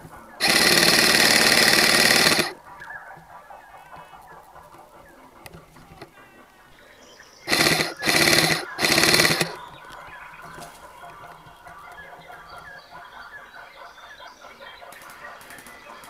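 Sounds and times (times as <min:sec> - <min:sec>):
airsoft gun full-auto bursts: 0:00.4 - 0:02.6, 0:07.5 - 0:09.6.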